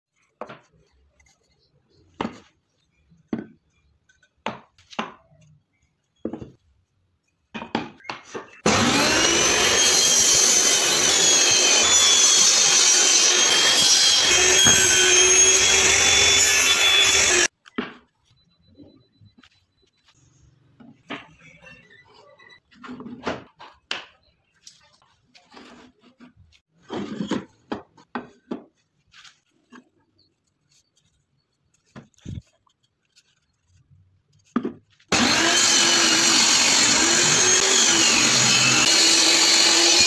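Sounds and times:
table saw cutting wood: 8.6 - 17.5, 35.1 - 40.0.

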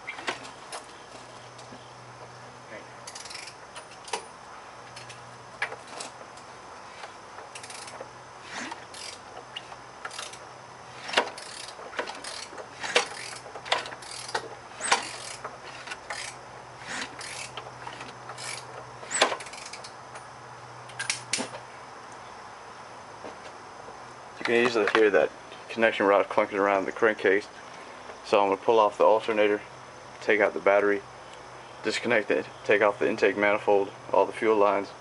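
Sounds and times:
ratchet clicks: 3.0 - 4.2, 5.0 - 10.4, 11.0 - 20.0.

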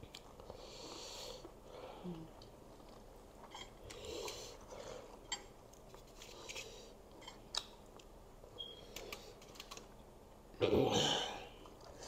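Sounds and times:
people chewing noodles: 0.0 - 8.2, 11.4 - 12.0.

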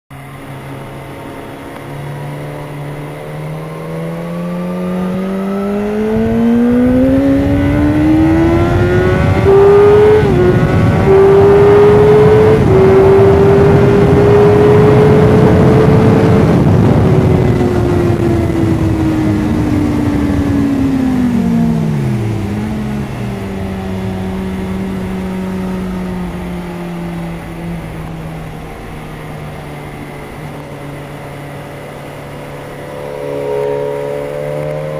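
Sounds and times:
motorcycle engine at full throttle: 0.1 - 34.9
wind rush: 5.0 - 34.9.

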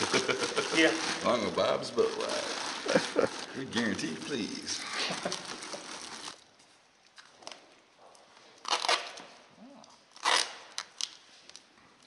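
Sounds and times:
short ripping sounds: 8.6 - 11.7.

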